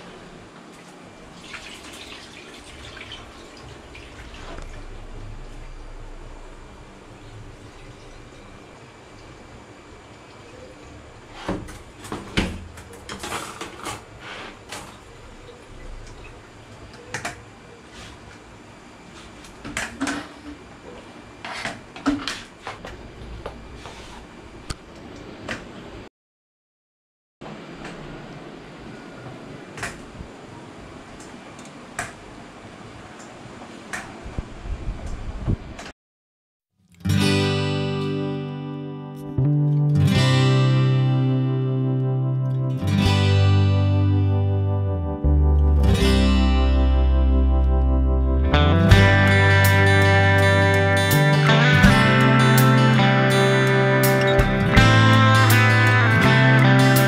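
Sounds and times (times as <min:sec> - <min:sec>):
low steady hum: 0:00.0 - 0:21.1, 0:38.4 - 0:56.9
water splashing in a plastic basin: 0:00.7 - 0:05.7
water dripping: 0:00.7 - 0:10.6.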